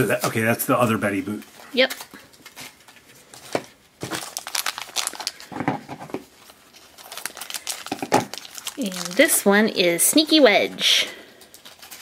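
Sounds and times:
plastic bag crinkling: 1.8s - 10.4s, 11.3s - 12.0s.

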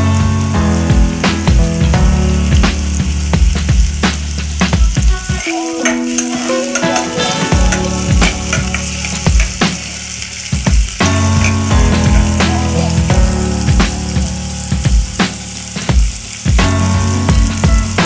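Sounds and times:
background music with a beat: 0.0s - 18.0s
onions sizzling in a frying pan: 0.0s - 18.0s
spatula stirring: 5.0s - 12.4s.

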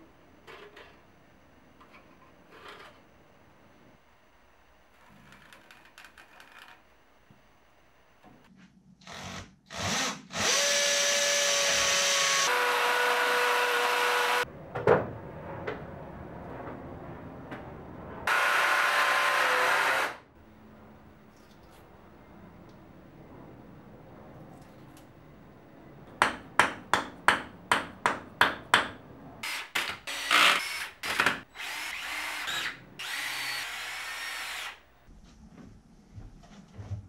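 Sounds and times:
electric drill boring into wall: 9.0s - 14.4s, 18.3s - 20.2s, 29.4s - 34.8s.

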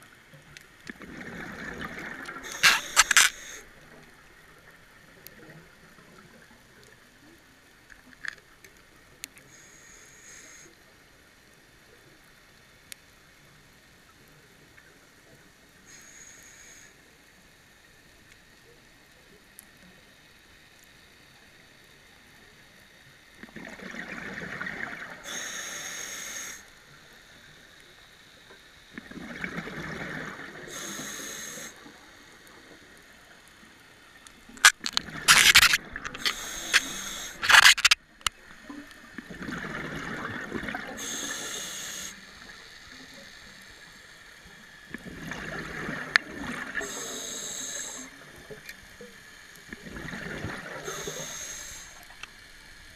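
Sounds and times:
gurgling bubble noise: 0.9s - 2.7s, 29.0s - 30.6s, 39.2s - 40.9s, 45.0s - 46.8s, 49.8s - 50.8s
regulator hiss: 2.4s - 3.9s, 9.4s - 10.8s, 15.8s - 17.3s, 25.2s - 28.7s, 30.6s - 38.2s, 40.8s - 44.7s, 46.7s - 49.6s, 50.8s - 52.9s
sharp clicks and rattles: 2.5s - 3.4s, 34.6s - 38.4s.

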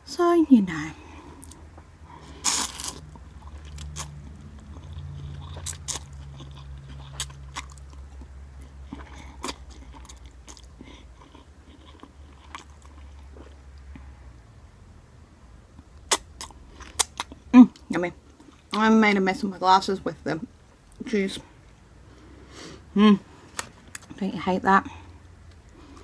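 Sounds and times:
steady low hum: 0.0s - 26.0s
person slurping and chewing noodles: 2.2s - 14.0s.

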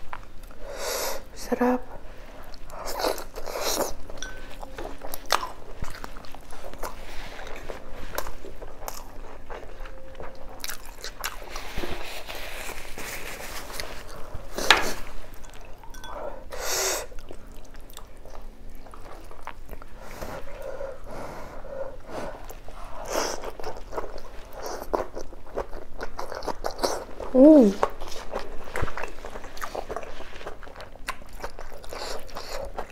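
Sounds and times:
wet chewing and lip-smacking: 2.4s - 11.6s, 17.1s - 20.7s, 22.4s - 32.9s.

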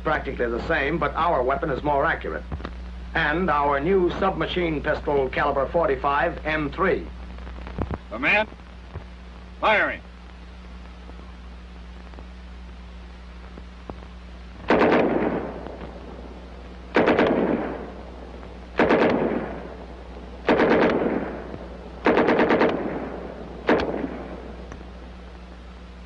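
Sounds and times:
submachine gun bursts: 14.7s - 15.5s, 16.9s - 17.8s, 18.8s - 19.6s, 20.5s - 21.4s, 22.0s - 23.1s.

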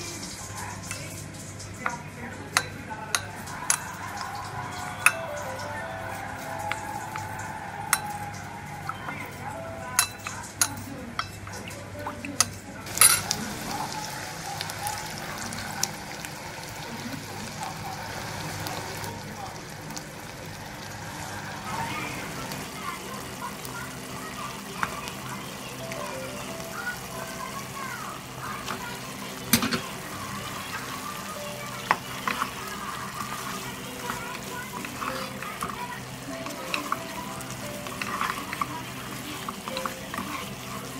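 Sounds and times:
sauce sizzling and bubbling: 0.0s - 40.9s
metal spoon clinking on plate: 12.4s - 13.4s, 29.5s - 29.9s.

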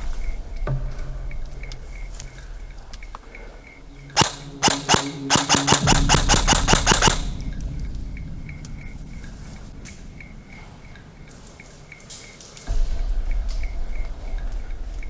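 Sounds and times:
airsoft gun shots: 4.2s - 7.5s.

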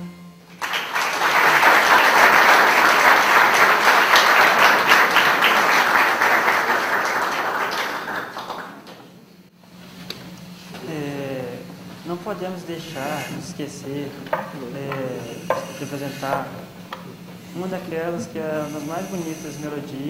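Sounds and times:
audience applauding: 0.5s - 9.2s.

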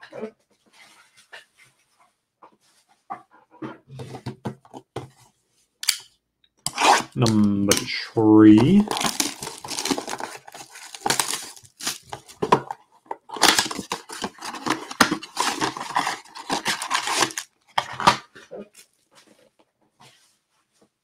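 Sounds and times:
cardboard box tearing: 6.7s - 7.2s, 8.8s - 12.4s, 13.3s - 18.2s.

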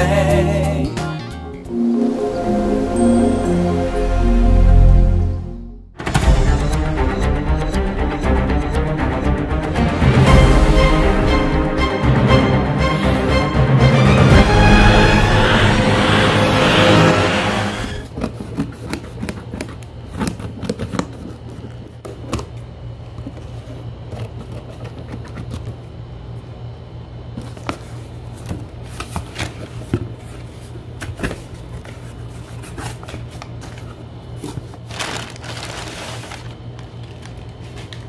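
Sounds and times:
packing paper rustling: 28.9s - 38.0s.

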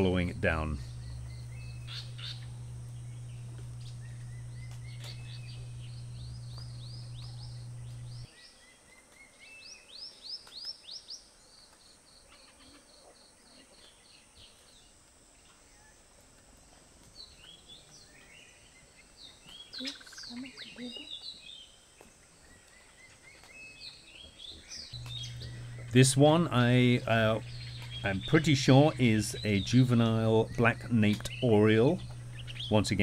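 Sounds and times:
steady low hum: 0.0s - 8.3s, 24.8s - 33.0s
forest birds chirping: 0.0s - 33.0s.

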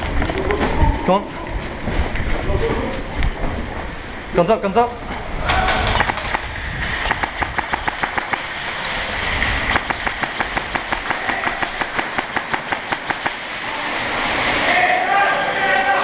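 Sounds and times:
airsoft guns firing: 5.7s - 14.6s.

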